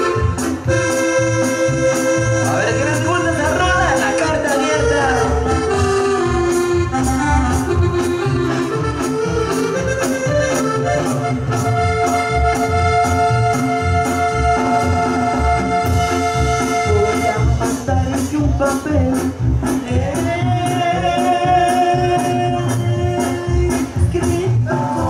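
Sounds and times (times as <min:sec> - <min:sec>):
bass: 0:00.0 - 0:25.0
drums keeping steady beat: 0:00.0 - 0:25.0
lead melody with held notes: 0:00.0 - 0:25.0.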